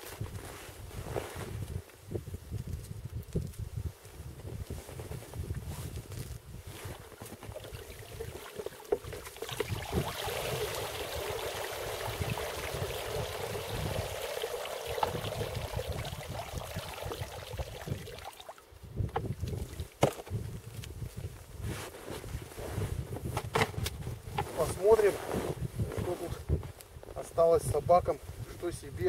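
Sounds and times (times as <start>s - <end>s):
wind rumble on microphone: 0.0s - 8.4s, 9.0s - 29.0s
water trickling and splashing: 6.8s - 20.0s.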